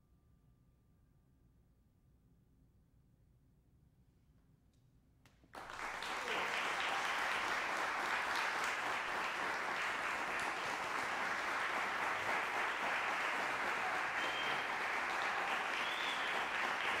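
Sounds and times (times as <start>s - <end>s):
audience applause: 5.6s - 17.0s.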